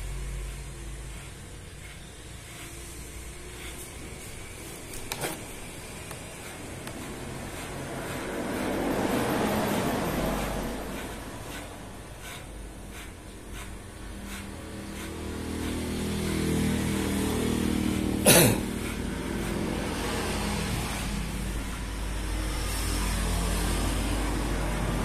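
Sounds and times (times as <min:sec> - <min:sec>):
vehicle passing by: 0:06.3 - 0:25.0.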